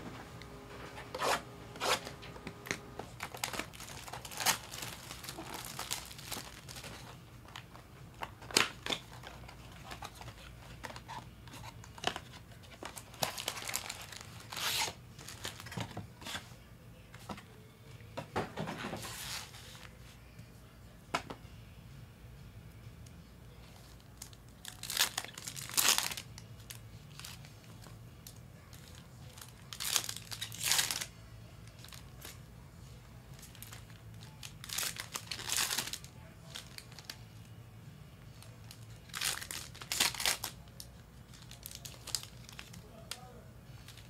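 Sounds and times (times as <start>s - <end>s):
wrappers tearing and crinkling: 1.1s - 16.4s, 23.8s - 32.4s, 33.3s - 37.2s, 38.4s - 44.0s.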